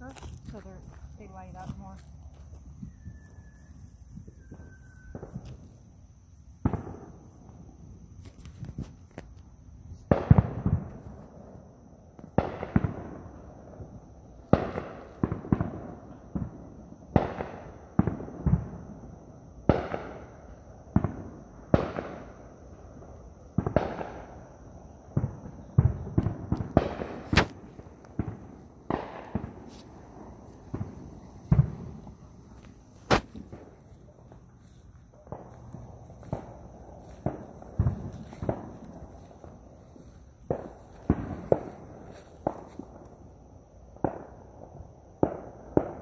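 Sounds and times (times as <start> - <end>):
fireworks bangs with echo: 6.6 - 9.0, 10.0 - 11.6, 12.2 - 19.0, 19.6 - 22.5, 23.5 - 24.4, 25.1 - 43.0, 44.0 - 46.0.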